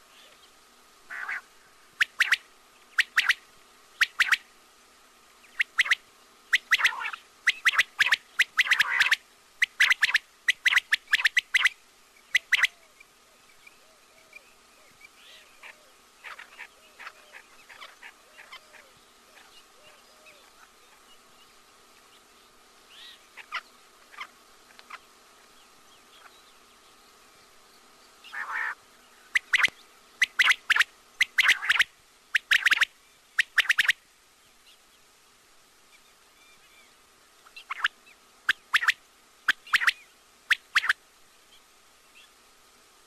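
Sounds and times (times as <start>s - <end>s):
faint steady hum: 0.0s - 43.0s
quail calling: 1.1s - 3.4s, 4.0s - 4.5s, 5.4s - 12.9s, 13.8s - 21.1s, 22.9s - 25.1s, 28.2s - 34.0s, 37.4s - 41.0s.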